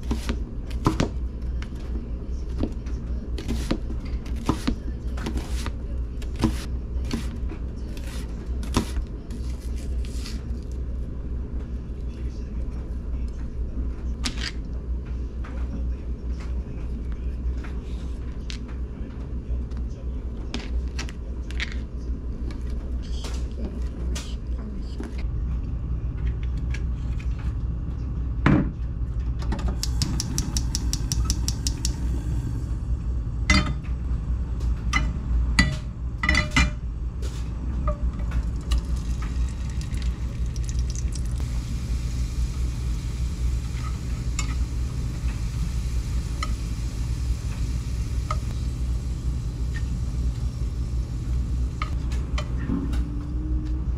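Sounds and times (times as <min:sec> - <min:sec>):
steady low hum: 0:00.0 - 0:53.9
gas hob ticking: 0:29.8 - 0:32.1
oil sizzling: 0:38.4 - 0:51.9.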